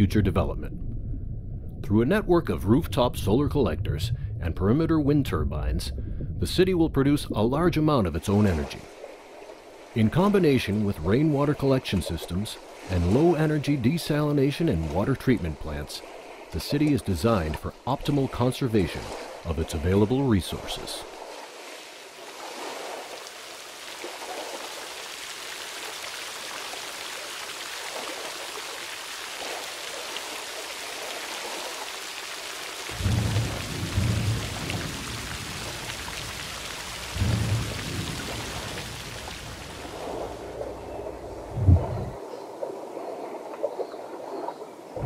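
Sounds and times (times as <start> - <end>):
loud low boom: 0.5 - 7.5, 33.0 - 35.7, 37.1 - 39.0, 41.4 - 42.2
rain hissing: 22.6 - 42.2
thunder rolling: 32.9 - 40.7, 41.4 - 42.2.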